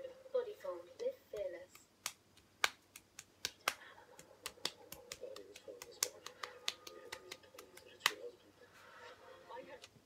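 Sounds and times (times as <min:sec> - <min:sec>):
fidgeting hands clicking and tapping: 0:01.3 - 0:08.4.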